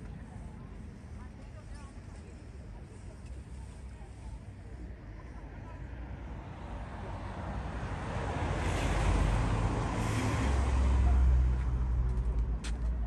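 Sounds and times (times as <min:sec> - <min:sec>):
car passing: 0:05.9 - 0:13.0.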